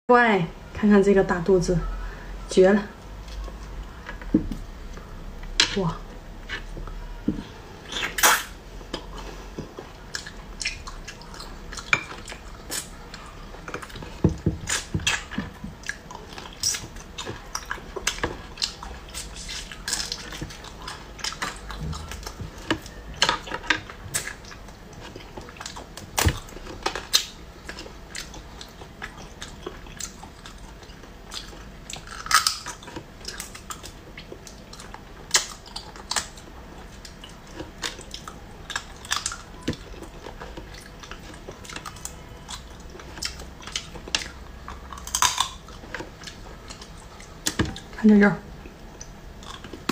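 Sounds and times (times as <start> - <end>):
chewing: 6.0 - 48.0, 48.6 - 49.9
crab shell cracking: 43.3 - 45.8.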